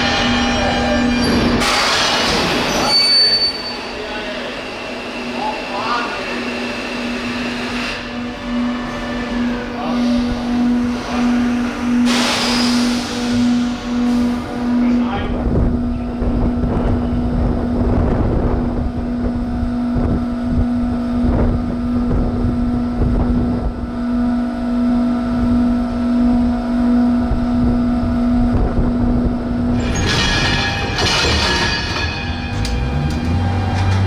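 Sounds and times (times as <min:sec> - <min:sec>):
wheels screeching on track: 0:00.0 - 0:16.1, 0:29.7 - 0:34.0
locomotive humming on rails: 0:00.0 - 0:34.0
knocks and clatter: 0:29.8 - 0:34.0.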